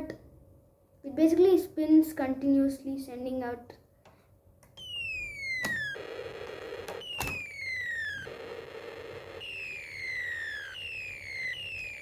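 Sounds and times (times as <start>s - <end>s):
whistle gliding down in pitch: 4.8s - 6.4s, 7.0s - 12.0s
noisy blast from small speaker: 4.8s - 12.0s.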